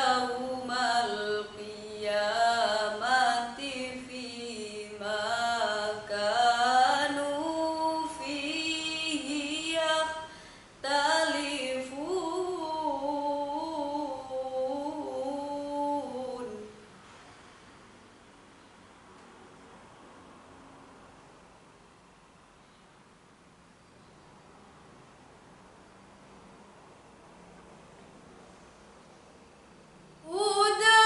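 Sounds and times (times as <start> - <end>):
woman reciting melodically: 0.0 - 16.9, 30.2 - 31.0.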